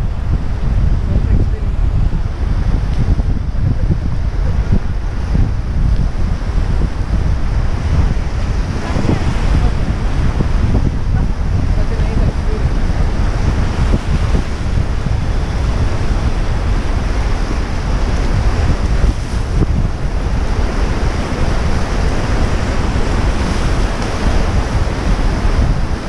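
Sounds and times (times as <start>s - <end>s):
wind buffeting microphone: 0.0s - 26.0s
river rapids rushing: 8.2s - 26.0s.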